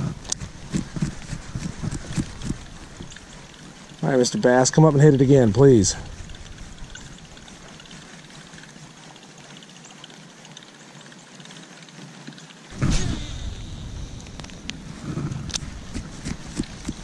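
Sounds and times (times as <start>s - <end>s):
rain falling on a pond: 0.0s - 14.8s
sudden loud burst of noise: 12.7s - 15.6s.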